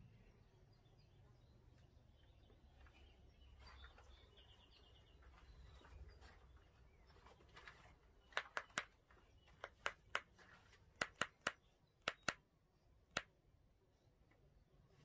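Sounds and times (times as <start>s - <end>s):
owl bill snapping clicks: 8.3s - 8.9s, 9.6s - 10.3s, 11.0s - 12.4s, 13.1s - 13.3s.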